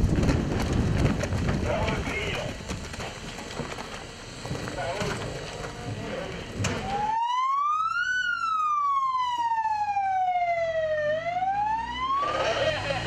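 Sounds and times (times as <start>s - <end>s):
emergency siren wailing: 6.6s - 13.0s.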